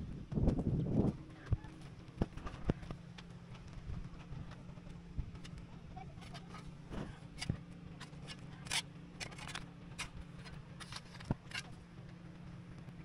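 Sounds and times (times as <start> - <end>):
steady low hum: 0.0 - 13.0
shovel scraping wet soil and gravel: 6.5 - 11.8.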